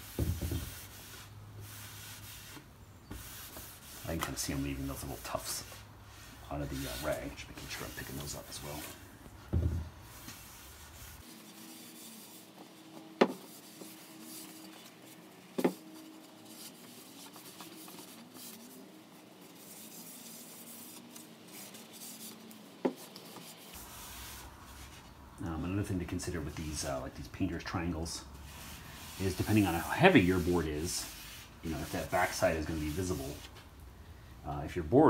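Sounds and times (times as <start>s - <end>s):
rag rubbing over wooden boards: 0.0s - 9.0s, 10.0s - 25.1s, 25.8s - 33.6s
dull thump: 9.5s - 9.9s.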